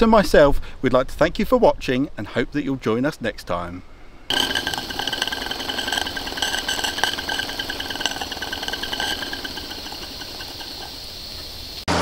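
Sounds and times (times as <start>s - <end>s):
toy steam engine whining and ticking: 4.3s - 11.8s.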